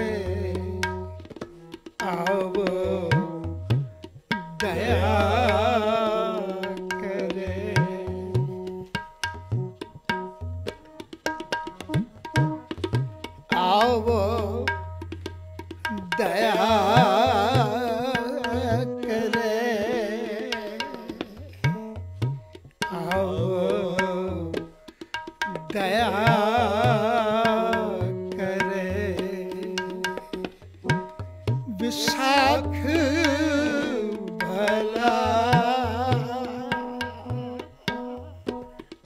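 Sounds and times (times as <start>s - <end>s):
man singing a hymn: 0.0s - 0.8s, 2.0s - 3.6s, 4.6s - 8.8s, 13.6s - 14.7s, 16.1s - 21.6s, 22.9s - 24.6s, 25.6s - 30.0s, 31.7s - 38.6s
harmonium and keyboard notes: 0.0s - 39.0s
tabla rhythm: 0.0s - 39.0s.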